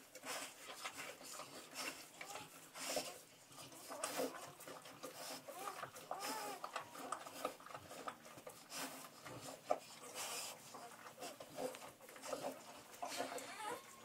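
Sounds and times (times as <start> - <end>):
rustling: 0.0 - 14.0
wet licking: 0.0 - 14.0
puppies crying: 5.5 - 7.5, 13.0 - 14.0.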